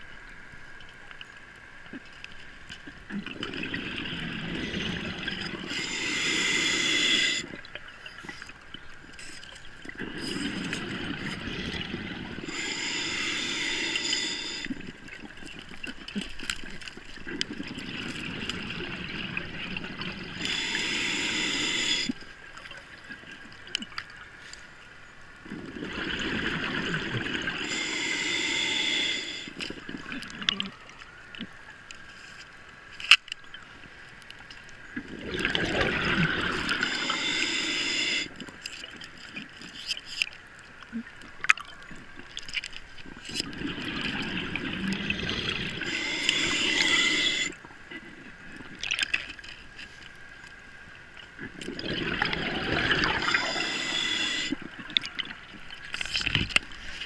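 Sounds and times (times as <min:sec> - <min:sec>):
exhaled bubbles gurgling: 0:02.9 - 0:08.5, 0:09.6 - 0:22.2, 0:25.4 - 0:30.8, 0:34.9 - 0:39.6, 0:43.0 - 0:47.7, 0:51.3 - 0:56.7
scuba regulator inhalation hiss: 0:04.6 - 0:07.6, 0:12.4 - 0:14.8, 0:20.3 - 0:22.2, 0:27.3 - 0:29.6, 0:36.4 - 0:38.4, 0:45.0 - 0:47.6, 0:52.2 - 0:54.6.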